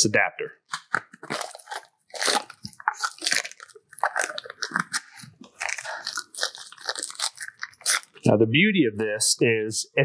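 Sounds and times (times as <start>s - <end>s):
plastic packaging crinkling: 0.7s - 8.3s.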